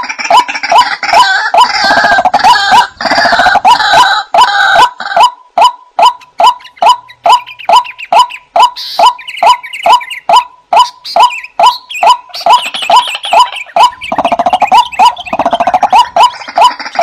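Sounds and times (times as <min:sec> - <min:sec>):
higher bird chirps: 0:05.3 - 0:17.0
rattling bird trill: 0:05.7 - 0:17.0.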